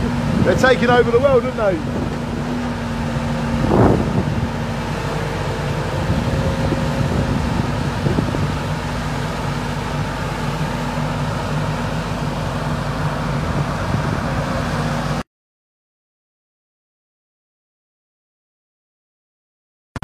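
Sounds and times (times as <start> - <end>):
excavator diesel engine droning: 0.0 - 15.2.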